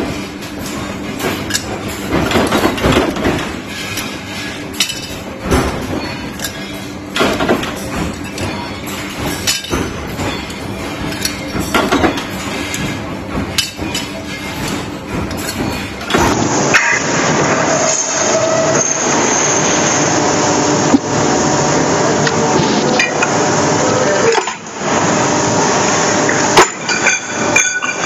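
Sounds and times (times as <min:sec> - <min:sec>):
steady machine hum: 0:00.0 - 0:28.0
metal parts clinking: 0:03.6 - 0:16.2.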